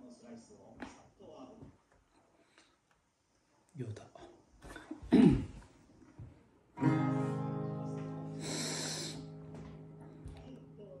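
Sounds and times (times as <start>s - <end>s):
acoustic guitar chord strummed: 6.8s - 11.0s.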